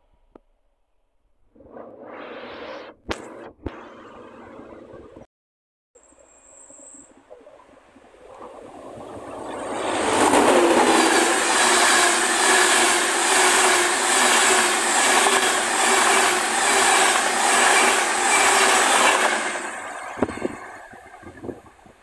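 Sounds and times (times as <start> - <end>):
train passing close by: 9.1 - 21.2.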